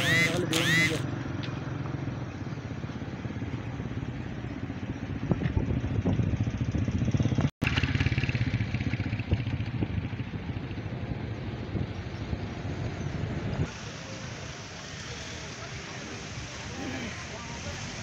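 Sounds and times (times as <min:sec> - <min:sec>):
motorcycle engine puttering: 0:00.0 - 0:04.1, 0:05.2 - 0:10.6.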